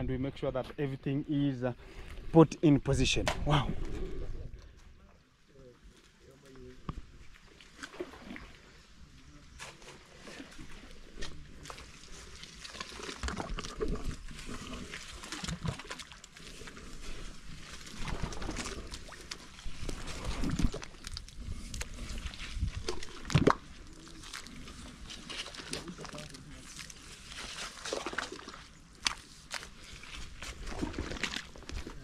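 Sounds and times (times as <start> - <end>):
hoe squelching in wet mud: 9.5 - 32.0.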